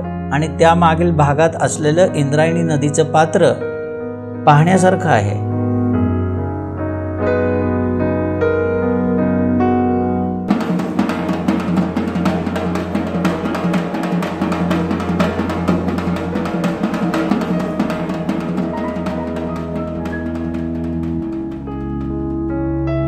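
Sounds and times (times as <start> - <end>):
piano music: 0.0 - 23.0
small drum beaten with a stick: 10.5 - 22.4.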